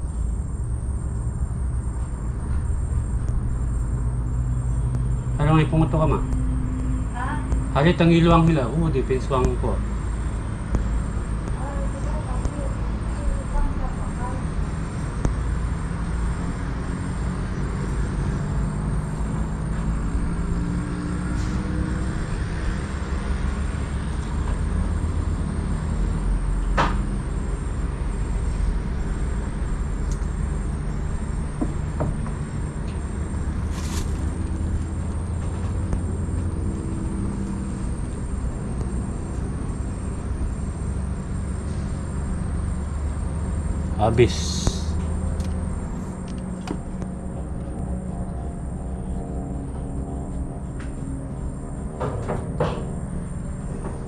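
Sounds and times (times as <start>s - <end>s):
engine running: 0.0s - 54.0s.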